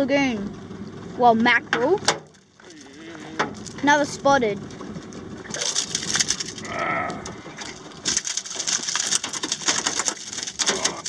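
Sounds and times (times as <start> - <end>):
fish slapping on metal floor: 5.5 - 6.6, 7.2 - 11.0.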